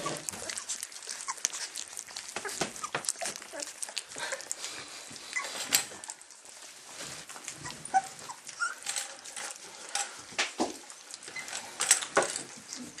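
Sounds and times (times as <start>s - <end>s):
puppies squeaking and whimpering: 0.0s - 10.0s, 10.8s - 13.0s
rustling and clicks: 0.0s - 13.0s.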